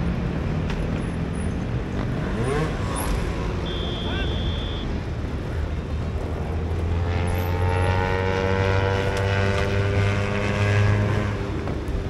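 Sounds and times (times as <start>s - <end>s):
engine drone: 1.9s - 12.0s.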